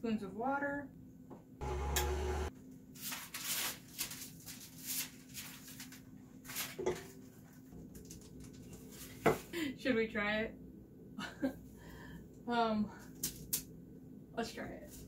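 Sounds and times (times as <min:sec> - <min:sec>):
stand mixer humming: 0:01.6 - 0:02.5
parchment paper rustling: 0:03.0 - 0:09.3.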